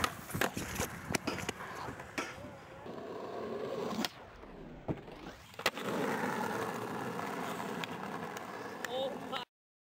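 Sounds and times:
skateboard landing clack: 0:00.0 - 0:02.4
skateboard tail popping: 0:00.0 - 0:03.0, 0:03.8 - 0:09.3
skateboard wheels rolling on asphalt: 0:00.0 - 0:09.5.

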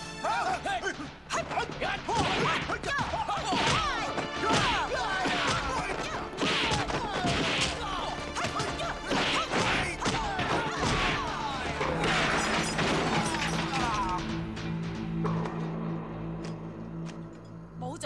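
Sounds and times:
music: 0:00.0 - 0:18.0
punch and kick hits: 0:02.1 - 0:13.4.

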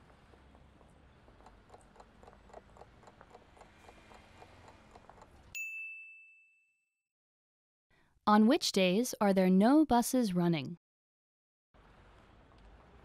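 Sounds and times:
clock ticking: 0:01.4 - 0:05.5
loud bell ding: 0:05.6 - 0:06.8.

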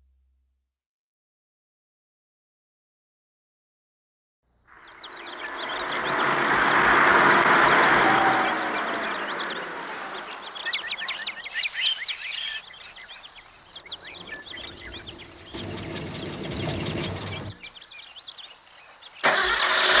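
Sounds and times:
bird chirps: 0:04.7 - 0:07.4, 0:08.1 - 0:19.9
rushing noise: 0:04.8 - 0:12.6
low rumble: 0:13.6 - 0:17.8.

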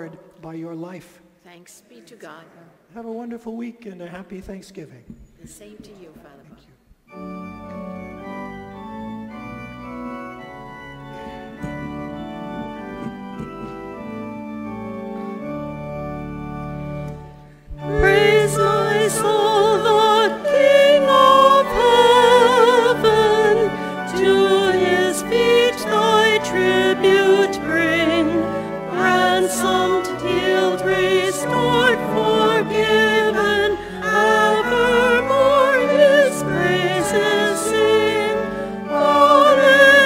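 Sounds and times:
church organ chords: 0:07.1 - 0:40.0
person singing with vibrato: 0:17.8 - 0:40.0.

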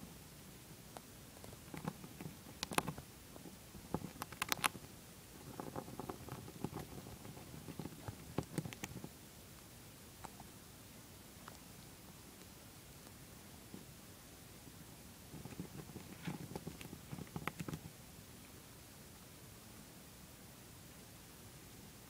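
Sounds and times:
hamster gnawing peanut: 0:00.9 - 0:10.6, 0:11.3 - 0:14.0, 0:15.0 - 0:18.1.

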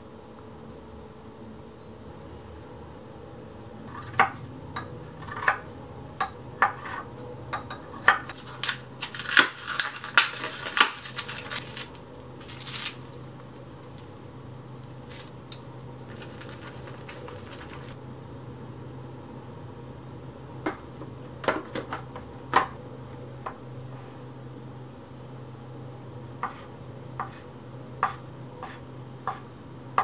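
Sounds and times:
low steady hum: 0:00.0 - 0:30.0
plastic pack being opened: 0:08.4 - 0:14.2, 0:14.8 - 0:15.3, 0:16.1 - 0:18.0.

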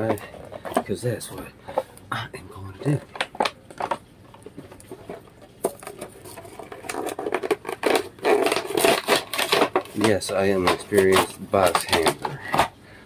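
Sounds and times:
plastic package being torn open: 0:05.6 - 0:12.7.

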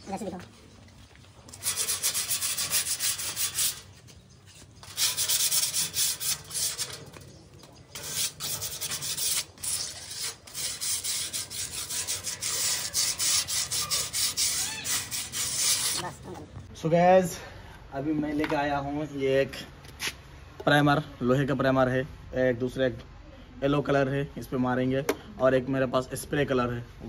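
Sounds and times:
scraping metal signboard: 0:01.5 - 0:16.3.

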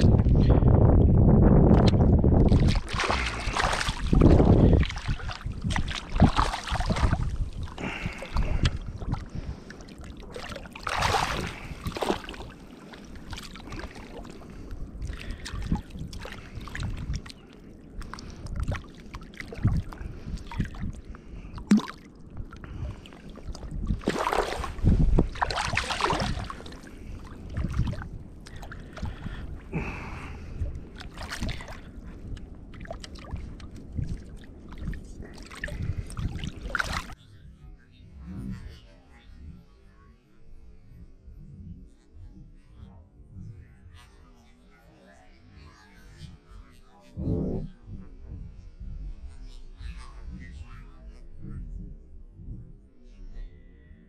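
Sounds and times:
shallow water sloshing and splashing: 0:01.7 - 0:37.2.

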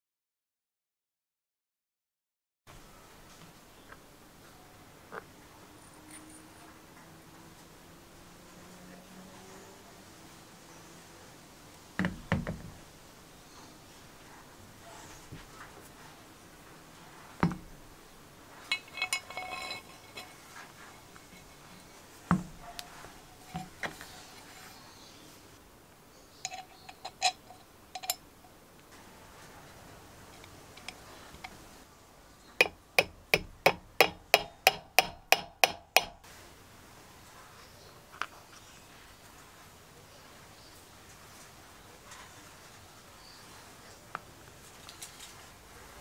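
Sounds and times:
metal parts clinking: 0:18.7 - 0:22.0, 0:26.4 - 0:28.2
sharp metallic taps: 0:32.6 - 0:36.2.

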